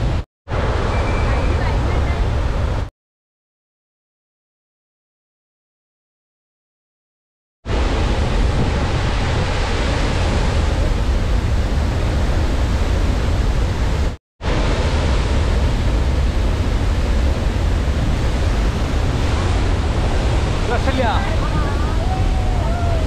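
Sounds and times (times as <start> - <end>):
waterfall rushing and rumbling: 7.7 - 23.0.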